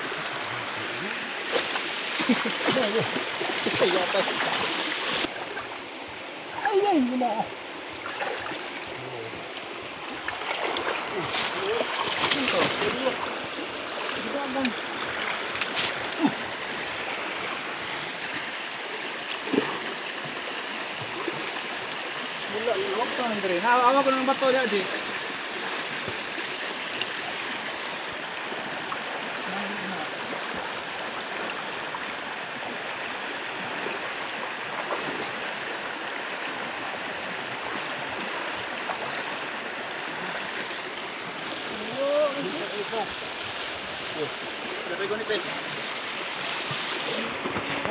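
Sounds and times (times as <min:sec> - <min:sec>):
creek water running: 0:00.0 - 0:47.9
people splashing in water: 0:01.0 - 0:05.6, 0:08.0 - 0:16.7, 0:19.2 - 0:20.4.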